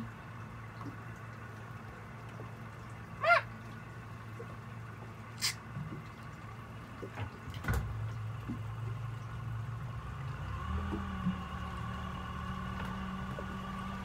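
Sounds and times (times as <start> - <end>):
boat engine humming: 0.0 - 14.0.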